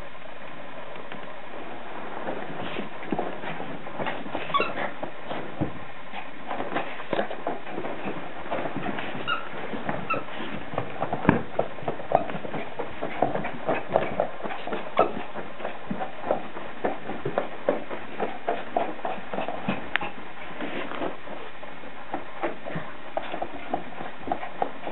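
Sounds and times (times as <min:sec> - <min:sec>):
dog scratching and rustling cloth: 0:02.0 - 0:21.5
short high-pitched squeaks: 0:04.4 - 0:04.9, 0:09.2 - 0:10.3.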